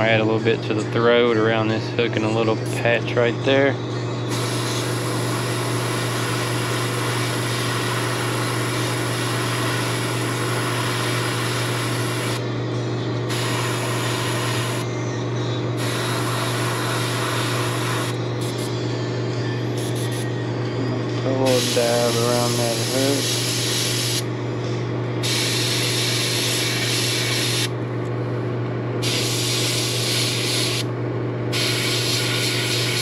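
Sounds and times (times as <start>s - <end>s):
constant low hum: 0.0s - 33.0s
airbrush spraying hiss: 21.5s - 24.2s, 25.2s - 27.7s, 31.6s - 33.0s.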